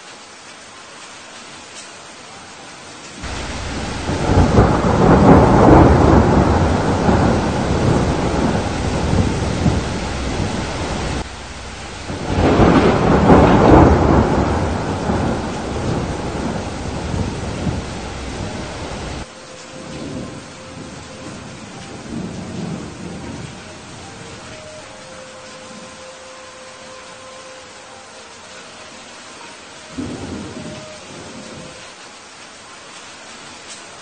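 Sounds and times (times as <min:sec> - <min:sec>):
steady rain: 0:00.0 - 0:34.0
rolling thunder: 0:03.2 - 0:24.3.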